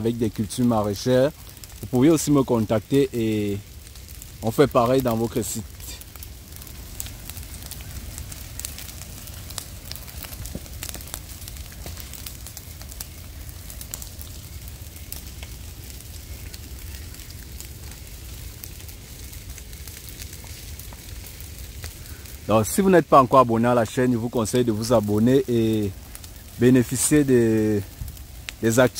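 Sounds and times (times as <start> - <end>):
fire crackling and popping: 0.0 - 28.9.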